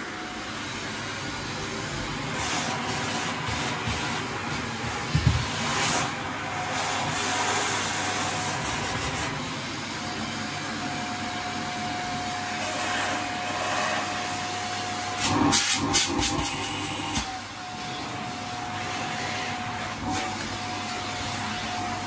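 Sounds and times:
vacuum cleaner running: 0.0 - 22.0
hose knocks and rattles: 5.1 - 5.6.

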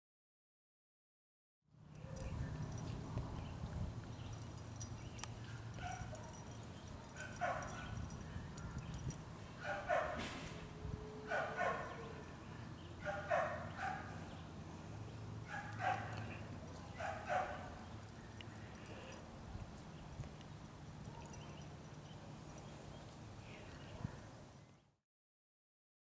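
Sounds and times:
dog barking: 5.4 - 9.0, 9.6 - 12.4, 13.0 - 14.4, 15.4 - 17.9, 21.0 - 21.7.

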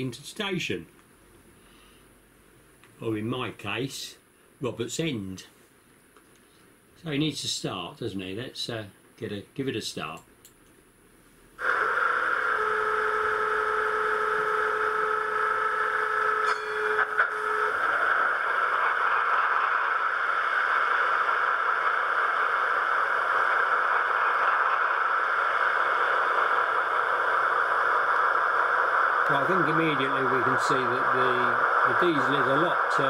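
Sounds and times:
steady electronic tones: 11.6 - 19.6.

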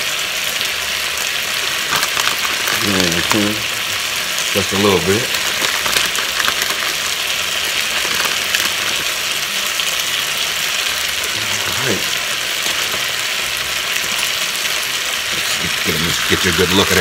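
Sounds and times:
food sizzling in a skillet: 0.0 - 17.0.

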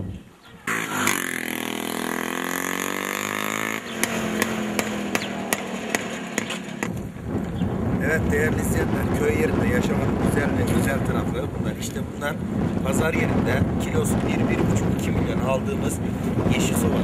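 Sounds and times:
small motorcycle engine: 0.6 - 7.0.

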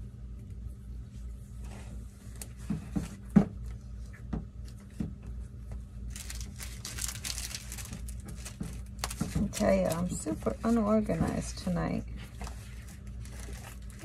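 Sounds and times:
low steady hum: 0.0 - 14.0
paper rustling: 6.1 - 10.8, 12.2 - 14.0
paper handling taps and clicks: 7.2 - 10.4.

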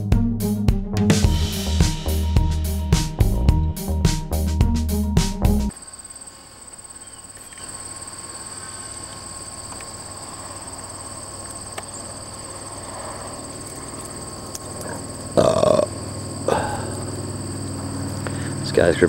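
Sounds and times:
music: 0.0 - 5.7
insects trilling: 5.7 - 19.0.

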